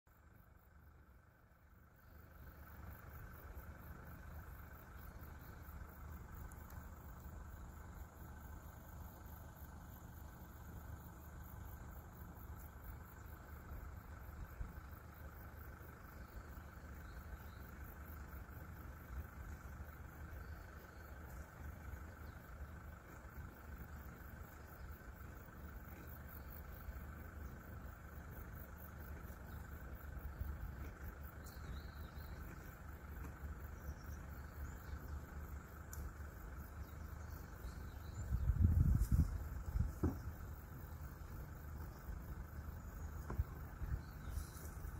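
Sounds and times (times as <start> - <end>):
insects trilling: 0.1 - 44.9
low steady rumble: 0.1 - 44.9.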